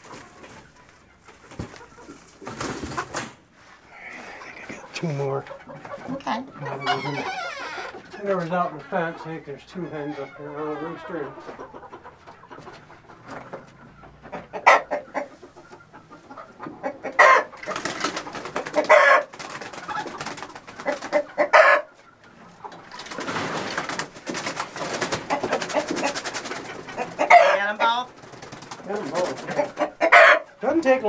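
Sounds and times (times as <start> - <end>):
hens squawking and clucking: 0.0 - 31.0
wing flapping: 17.6 - 21.3, 22.9 - 27.1, 28.1 - 29.6.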